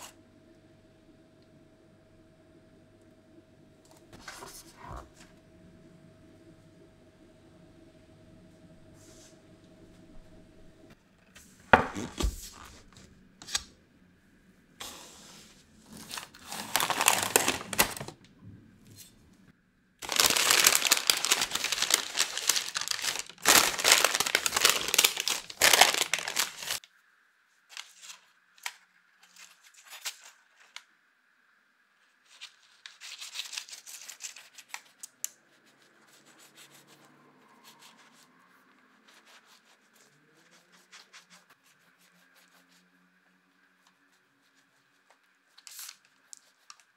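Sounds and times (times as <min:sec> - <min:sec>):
parchment paper rustling: 0:04.2 - 0:05.2, 0:14.8 - 0:18.2, 0:20.0 - 0:26.9, 0:27.6 - 0:30.9, 0:32.0 - 0:37.0, 0:37.6 - 0:46.9.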